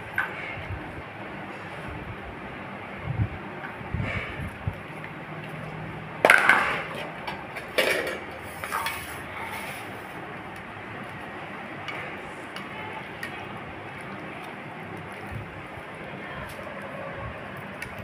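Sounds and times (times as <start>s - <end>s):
steel dishes clattering on tiles: 6.2s - 9.2s.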